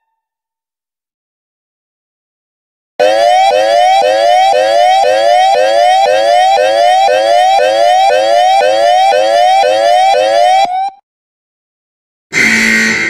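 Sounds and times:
electronic warning siren: 3.0 - 11.0.

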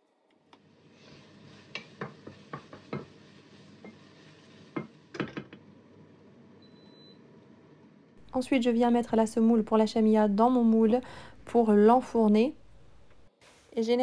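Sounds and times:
meat frying with steady sizzle: 0.2 - 6.9
wooden spatula knocking on pan: 2.0 - 3.1.

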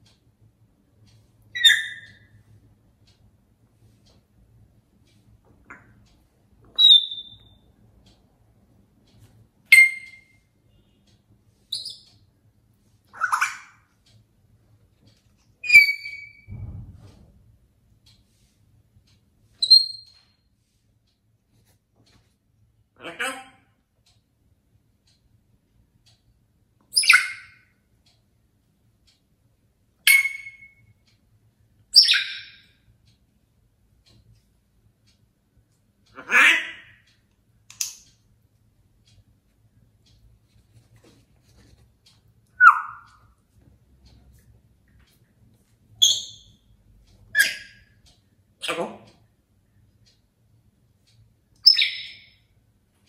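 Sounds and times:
parrot whistles and calls: 1.5 - 2.3, 6.7 - 7.6, 9.7 - 10.4, 15.6 - 16.5, 19.6 - 20.2, 26.9 - 27.6, 30.0 - 30.8, 31.9 - 32.7, 42.6 - 43.2, 46.0 - 46.6, 47.3 - 47.9, 51.6 - 52.4.

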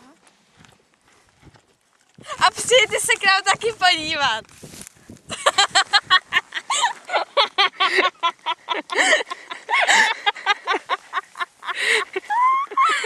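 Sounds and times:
girl giggling: 5.3 - 13.0.

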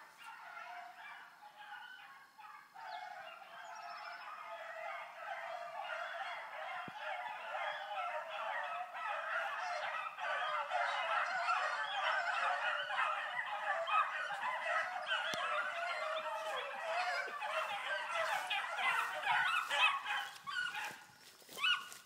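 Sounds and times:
pack of dogs baying: 0.0 - 22.0.

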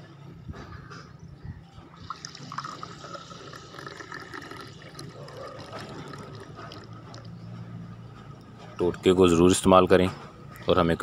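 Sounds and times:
tea pouring into a mug: 2.0 - 7.3.

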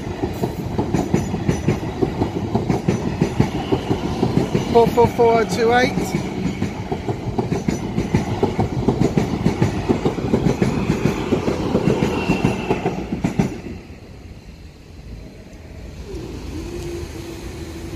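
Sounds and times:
train wheels clattering: 0.0 - 13.9.

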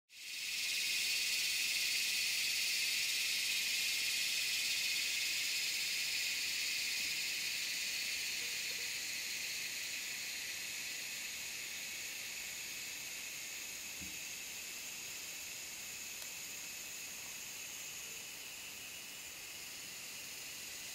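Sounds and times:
insects chorus: 0.1 - 20.9.

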